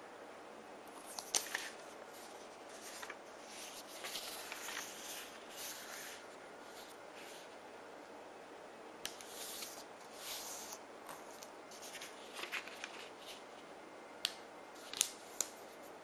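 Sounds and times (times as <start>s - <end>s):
paper crackling and rustling: 0.9s - 7.5s, 9.2s - 13.6s.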